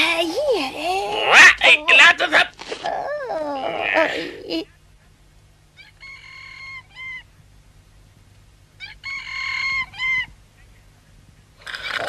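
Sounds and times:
rooster crowing: 5.8 - 7.3, 8.8 - 10.3.

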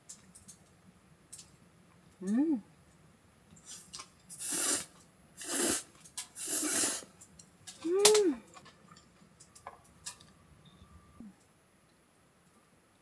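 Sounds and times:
person humming mm: 2.2 - 2.7, 7.8 - 8.5.

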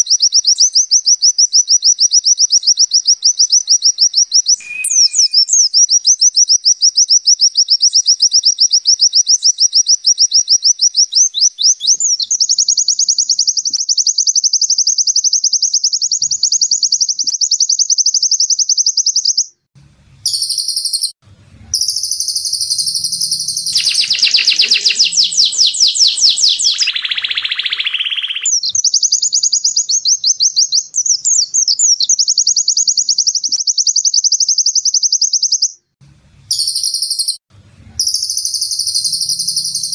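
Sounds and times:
bird song fast high trill: 2.5 - 6.1, 20.2 - 35.7, 36.5 - 37.4, 38.0 - 39.9.

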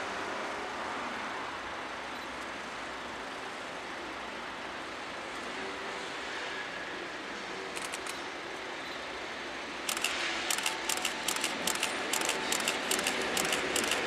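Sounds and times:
freight train approaching: 9.9 - 14.0.

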